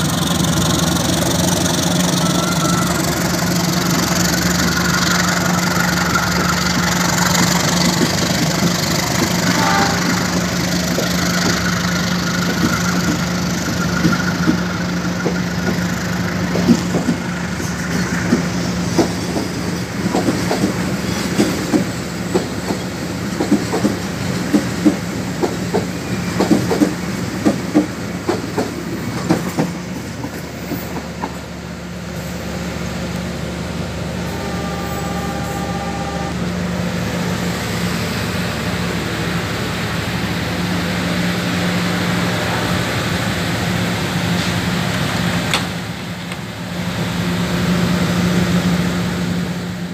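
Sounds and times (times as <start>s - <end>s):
wheels clacking over rail joints: 0.0s - 31.6s
train low drone: 0.0s - 49.9s.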